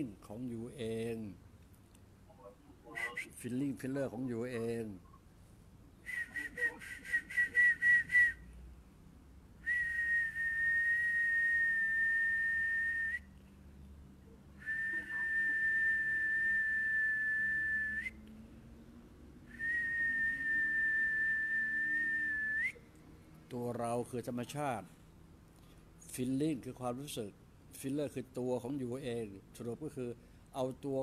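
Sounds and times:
person whistling high note: 2.9 - 3.3, 6.1 - 8.4, 14.6 - 18.1, 19.5 - 22.8
breaths: 25.0 - 26.0, 30.2 - 30.6.

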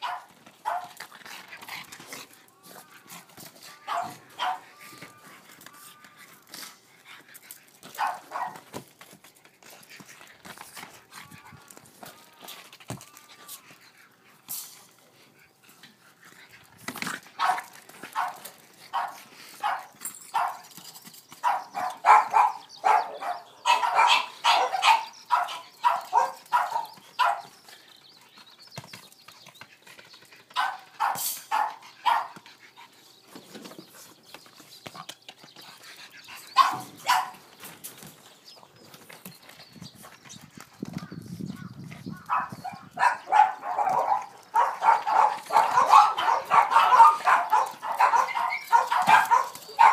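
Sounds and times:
dog barking excitedly: 0.0 - 1.0, 3.9 - 4.7, 8.0 - 8.7, 17.4 - 20.6, 21.4 - 27.5, 30.6 - 32.4, 36.5 - 37.4, 42.3 - 49.9.

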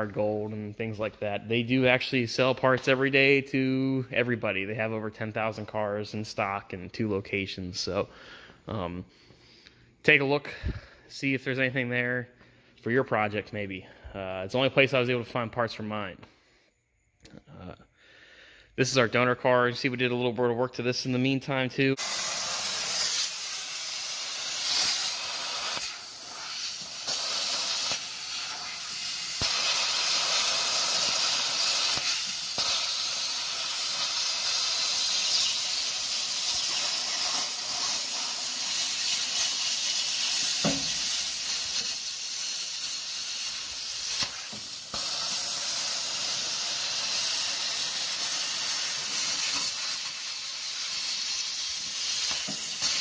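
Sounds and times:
plasma cutter hissing: 22.0 - 53.0.

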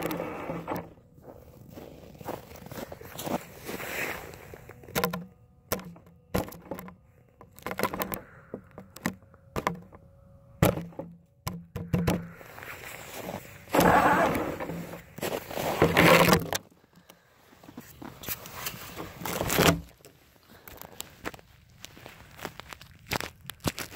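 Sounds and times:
faint steady whine: 0.0 - 23.6
toy truck rattling in snow: 12.0 - 16.7.

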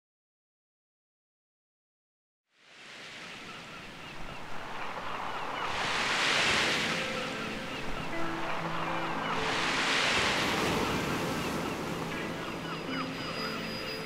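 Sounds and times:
sea waves washing ashore: 2.6 - 14.0
gulls calling: 3.2 - 14.0.

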